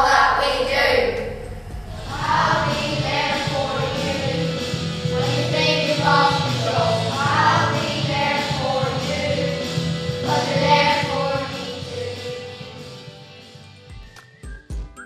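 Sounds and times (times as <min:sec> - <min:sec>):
children's choir singing: 0:00.0 - 0:01.4, 0:02.0 - 0:12.5
music: 0:00.0 - 0:15.0.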